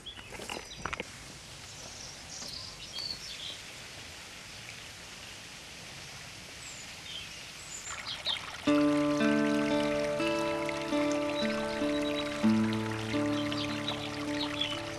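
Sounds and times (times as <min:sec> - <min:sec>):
footsteps on rock: 0:00.0 - 0:01.2
outdoor hiss: 0:01.0 - 0:14.9.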